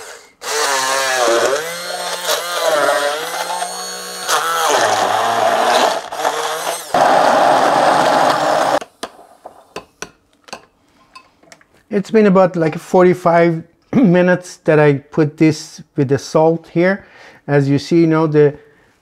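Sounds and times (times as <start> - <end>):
immersion blender whining: 0.0 - 8.9.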